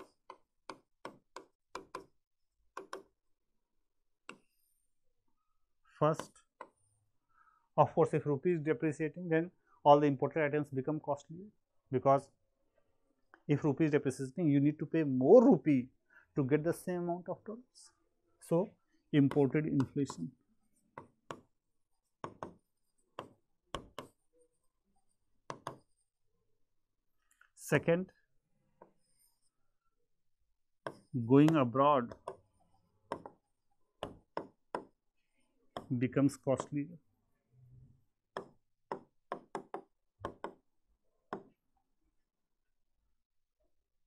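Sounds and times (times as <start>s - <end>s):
pen knocking on writing board: 22.2s - 22.6s, 23.2s - 24.2s, 25.5s - 25.9s, 33.1s - 33.4s, 34.0s - 34.9s, 38.4s - 40.6s.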